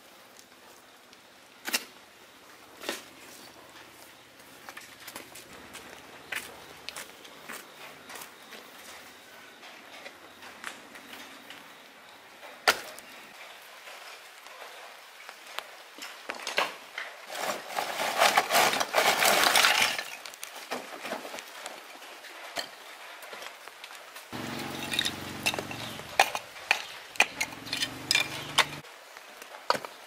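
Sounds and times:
loud rough noise: 0:24.4 - 0:26.4
hard objects clinking and knocking: 0:24.4 - 0:28.8.

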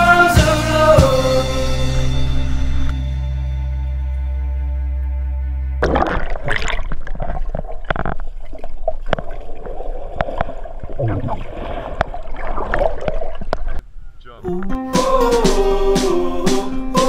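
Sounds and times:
held music chord: 0:00.0 - 0:05.8, 0:14.4 - 0:17.0
muffled underwater bubbling: 0:05.8 - 0:13.8
sharp clicks and knocks underwater: 0:05.8 - 0:13.8.

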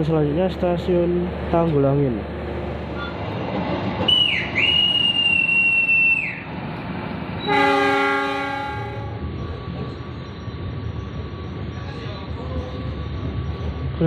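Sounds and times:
high whistle blown: 0:04.1 - 0:06.4
locomotive horn blast: 0:07.4 - 0:09.2.

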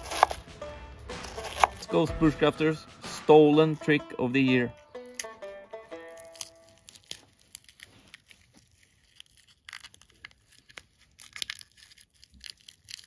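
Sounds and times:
plucked-string music: 0:00.0 - 0:07.2
faint crackling and crinkling: 0:06.4 - 0:13.0.

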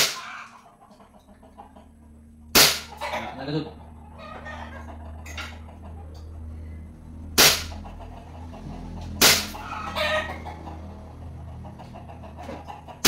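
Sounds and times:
airsoft pistol shots: 0:02.5 - 0:02.9, 0:07.4 - 0:07.7, 0:09.2 - 0:09.6.

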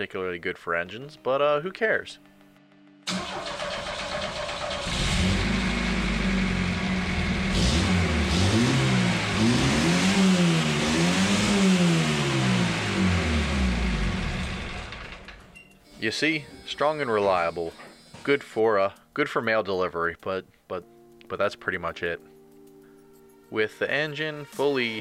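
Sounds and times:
car engine revving hard: 0:03.8 - 0:15.2.

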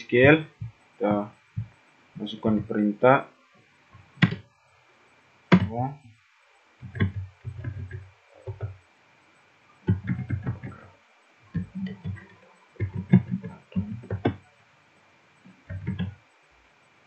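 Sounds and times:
typing on keyboard: 0:06.8 - 0:08.8, 0:09.9 - 0:10.8, 0:11.5 - 0:14.4, 0:15.7 - 0:16.1.

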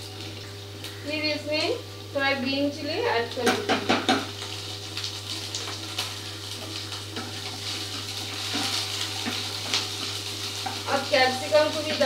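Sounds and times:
onions sizzling in hot oil: 0:00.0 - 0:12.0
spatula scraping a pan: 0:06.6 - 0:10.8.

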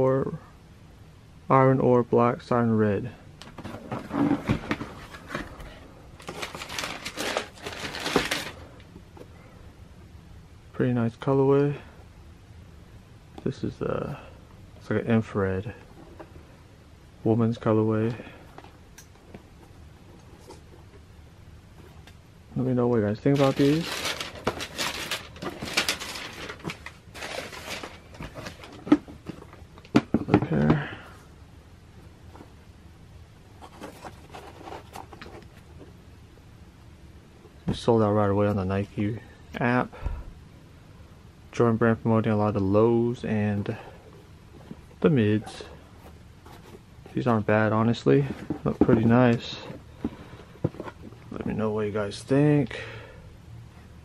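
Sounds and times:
tissue paper crinkling: 0:06.2 - 0:08.6, 0:23.3 - 0:28.8.

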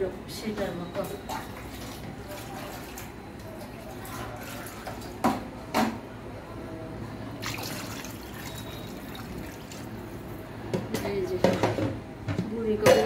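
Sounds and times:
water pouring into curry: 0:07.4 - 0:10.2.

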